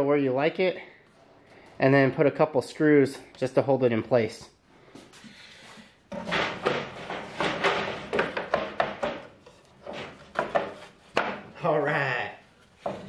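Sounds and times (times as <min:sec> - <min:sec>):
wooden knocks: 0:06.1 - 0:11.5
wood scraping and clattering: 0:06.1 - 0:11.6, 0:12.6 - 0:13.0.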